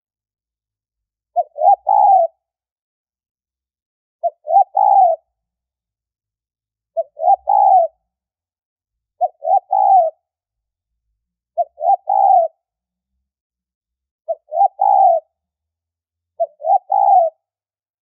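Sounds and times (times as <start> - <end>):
dove cooing: 1.4 - 2.4, 4.2 - 5.3, 7.0 - 8.0, 9.2 - 10.2, 11.6 - 12.6, 14.3 - 15.3, 16.4 - 17.5.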